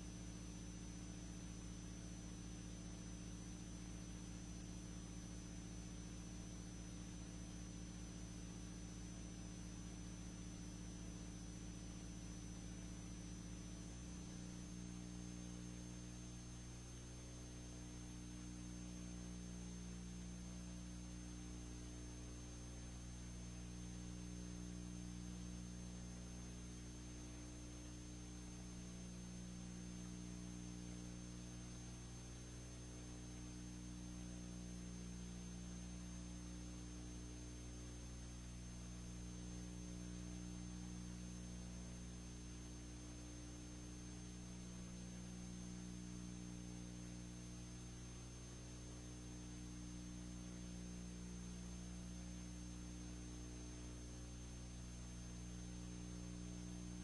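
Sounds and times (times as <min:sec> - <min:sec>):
electrical mains hum: 0:00.0 - 0:57.0
faint high whine: 0:00.0 - 0:57.0.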